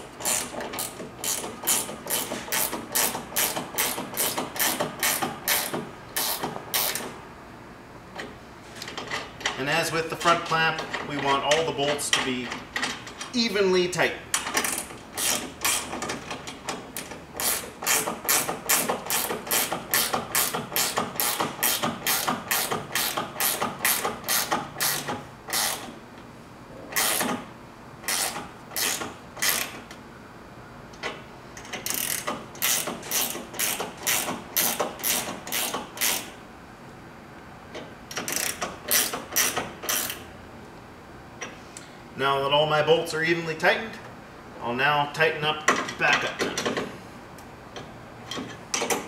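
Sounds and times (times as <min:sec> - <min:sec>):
ratcheting wrench clicking: 0:00.2 - 0:07.1, 0:14.4 - 0:25.9, 0:26.9 - 0:27.4, 0:28.0 - 0:29.9, 0:30.9 - 0:36.3, 0:37.8 - 0:40.2.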